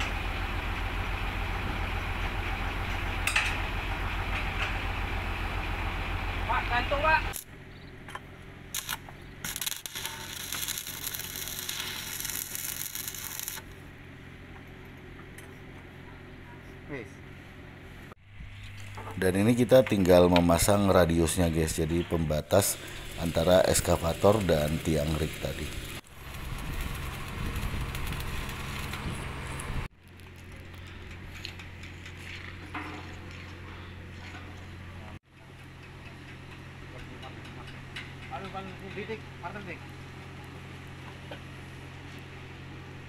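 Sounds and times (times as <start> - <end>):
low engine hum: 0.0 - 9.8, 25.3 - 36.9
low hum: 0.0 - 19.7
steel pipes knocking and clinking: 3.2 - 3.6
welding arc crackling: 6.4 - 7.5, 8.7 - 13.8, 22.6 - 30.9.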